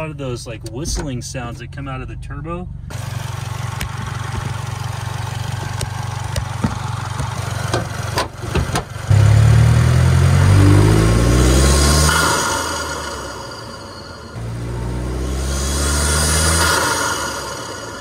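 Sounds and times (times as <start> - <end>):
car engine running: 0.0 - 18.0
engine knocks and clicks: 3.3 - 9.2
engine revving up in pitch: 9.1 - 18.0.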